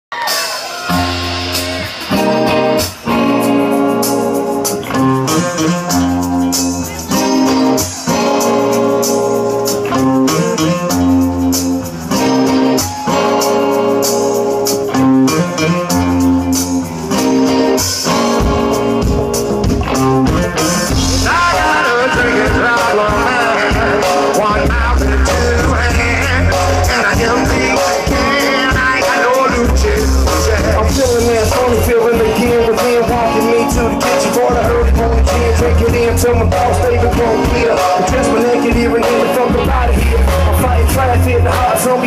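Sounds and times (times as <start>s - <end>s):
drums: 0.1s - 42.0s
electric guitar: 0.2s - 42.0s
low bass notes: 13.6s - 42.0s
person singing: 20.1s - 42.0s.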